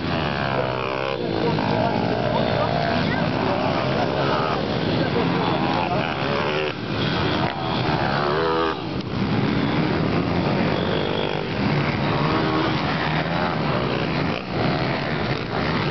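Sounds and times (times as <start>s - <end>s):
motorcycle engines revving: 0.0s - 15.9s.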